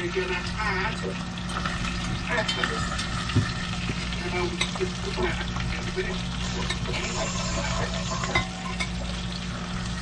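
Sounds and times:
chicken sizzling in oil: 0:00.0 - 0:10.0
metal tongs scraping pot: 0:04.5 - 0:09.2.

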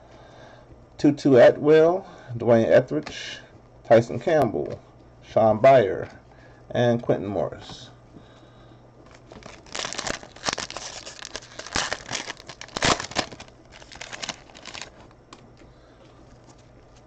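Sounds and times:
foil wrapper crinkling and tearing: 0:09.1 - 0:15.1.

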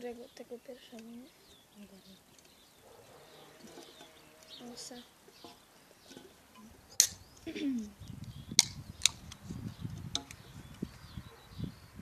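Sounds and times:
can handling knocks: 0:05.4 - 0:07.2, 0:10.1 - 0:10.4.

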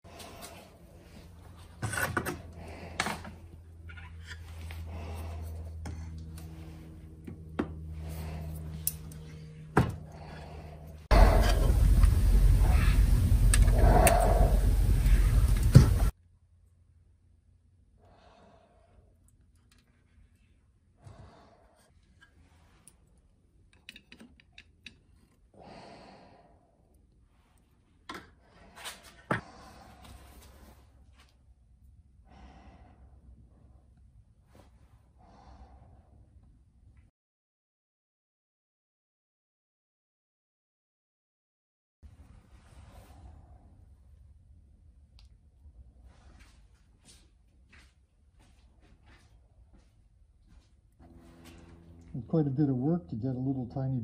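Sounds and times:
steady low hum: 0:00.1 - 0:23.8, 0:42.1 - 0:54.0.

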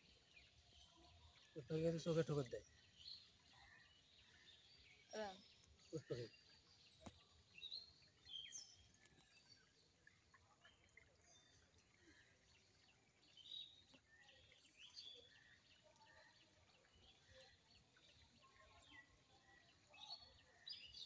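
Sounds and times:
small birds chirping: 0:00.0 - 0:21.0.

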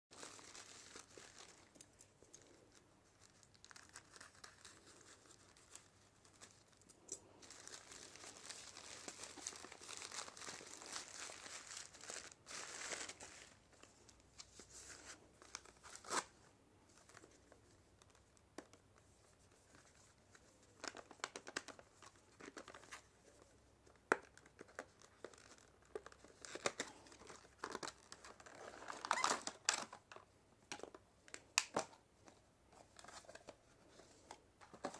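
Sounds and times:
plastic packaging crinkling: 0:00.1 - 0:06.8, 0:07.4 - 0:13.6, 0:24.5 - 0:30.2.

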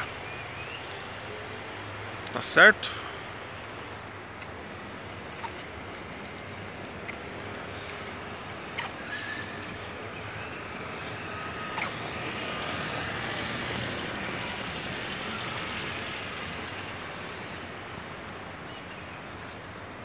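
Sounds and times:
distant road traffic: 0:00.0 - 0:20.0.

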